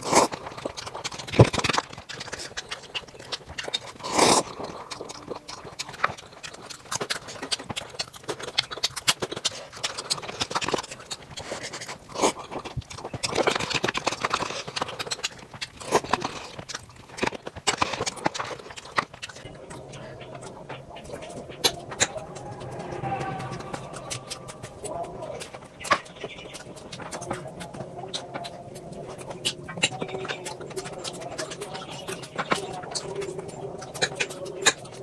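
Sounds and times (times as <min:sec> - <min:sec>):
chewing: 0:00.0 - 0:35.0
noodles slurped: 0:00.0 - 0:35.0.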